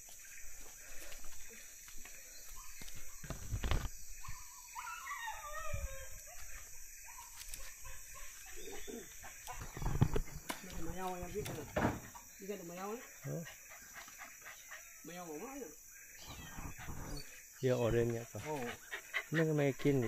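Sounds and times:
dog whining: 0:04.8 - 0:06.4, 0:16.2 - 0:17.3.

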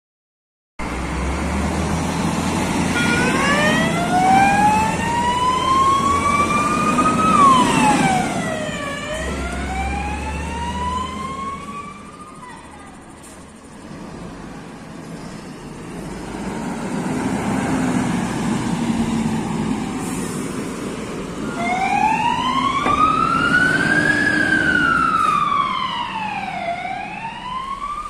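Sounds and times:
diesel truck engine driving past: 0:00.8 - 0:28.0
fire engine siren wailing: 0:00.9 - 0:13.1, 0:21.2 - 0:28.0.

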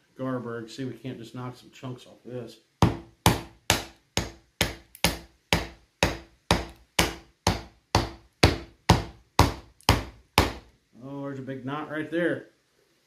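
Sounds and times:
mallet knocking on knife spine: 0:02.8 - 0:10.6.

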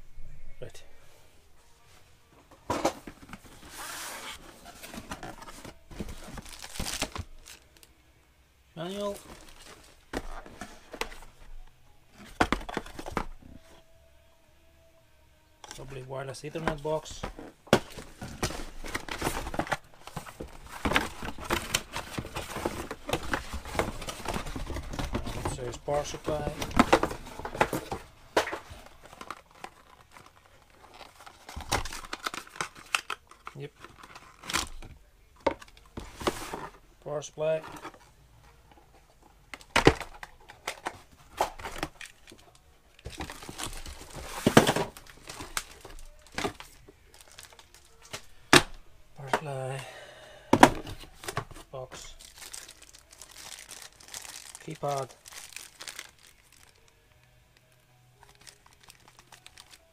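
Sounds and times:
cardboard and paper rustling: 0:02.6 - 0:07.6, 0:08.9 - 0:13.8, 0:15.7 - 0:36.8, 0:37.4 - 0:48.6, 0:50.6 - 0:56.9, 0:58.2 - 0:59.9
packaging crinkling rustles: 0:03.1 - 0:07.9, 0:39.7 - 0:48.3, 0:50.9 - 0:57.2, 0:58.2 - 0:59.9
plastic parts clicking and knocking: 0:39.5 - 0:49.5.

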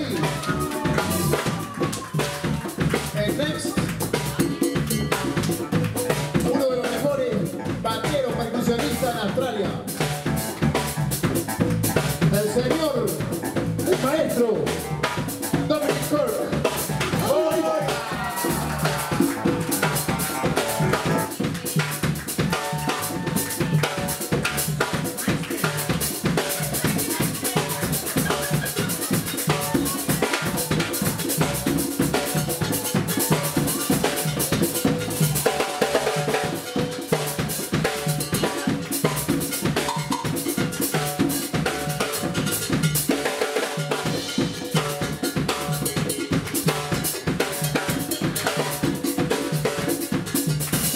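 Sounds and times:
drum kit: 0:00.0 - 0:50.9
hand drums: 0:00.0 - 0:50.9
saxophone: 0:18.1 - 0:21.5.

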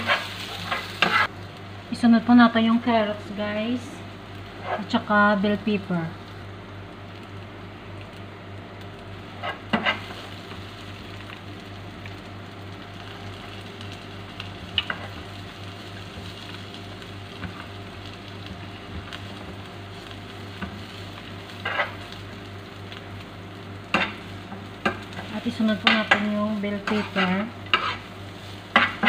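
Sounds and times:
metal spoon scraping a pan: 0:00.0 - 0:01.3, 0:09.4 - 0:10.2, 0:21.6 - 0:22.0, 0:25.9 - 0:28.1
oil sizzling in a frying pan: 0:00.0 - 0:29.0.

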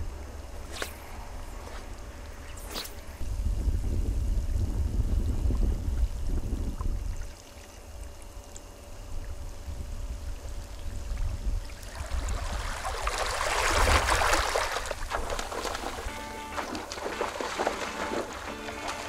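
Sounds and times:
wind buffeting microphone: 0:03.1 - 0:07.3
small waves lapping: 0:11.6 - 0:19.0.

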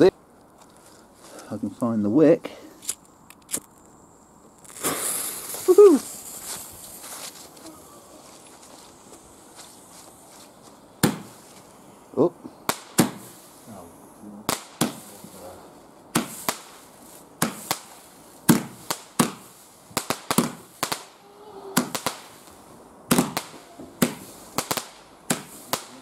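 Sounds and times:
firework bangs: 0:04.6 - 0:07.4, 0:11.0 - 0:11.6, 0:12.6 - 0:13.8, 0:14.4 - 0:26.0.

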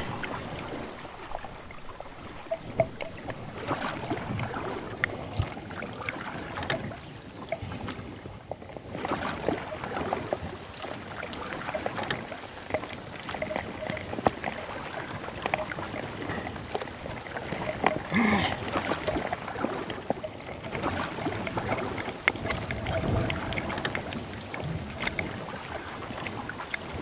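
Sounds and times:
paddle strokes splashing: 0:00.0 - 0:27.0
small knocks and clicks: 0:00.1 - 0:08.8, 0:19.9 - 0:27.0.

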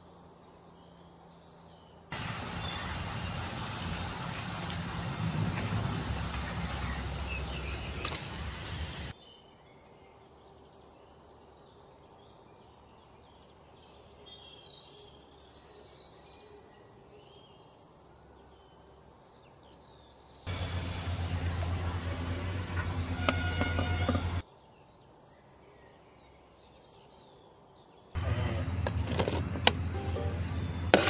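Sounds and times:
birds chirping: 0:00.2 - 0:09.3, 0:17.2 - 0:24.4, 0:26.3 - 0:31.0
hot oil sizzling and bubbling: 0:07.8 - 0:09.1.

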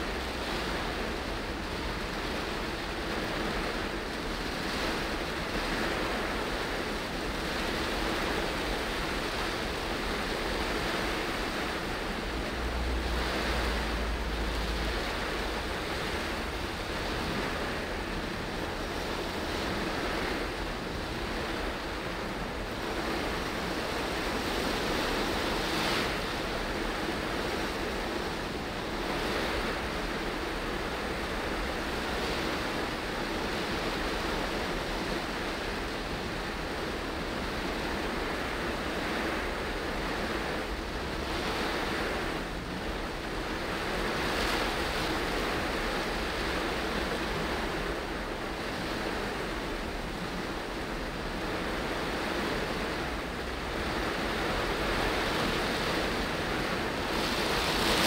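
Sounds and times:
heavy rain on a car: 0:00.0 - 0:58.0
tyres hissing on wet road: 0:08.0 - 0:20.5.

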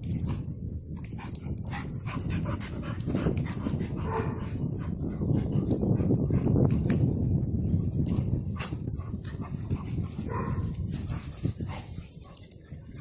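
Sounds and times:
scuffling paws on dirt: 0:08.2 - 0:12.6.

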